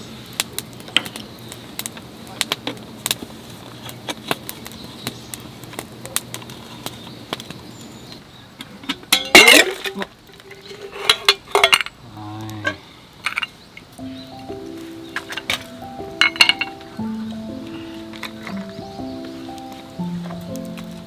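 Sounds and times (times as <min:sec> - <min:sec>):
clatter of metal camping gear: 0:08.6 - 0:12.0, 0:12.6 - 0:13.6, 0:15.2 - 0:16.8.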